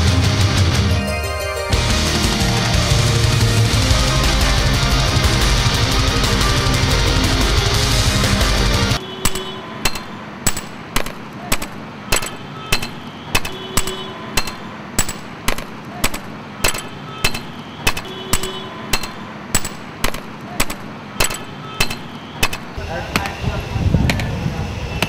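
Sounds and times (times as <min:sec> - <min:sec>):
music: 0:00.0 - 0:09.0.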